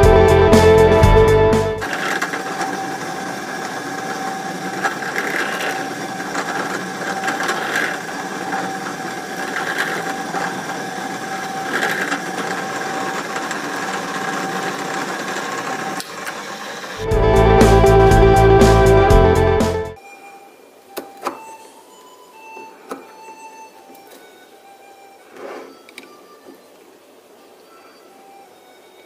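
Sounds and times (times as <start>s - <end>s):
drill press motor running: 1.7s - 19.9s.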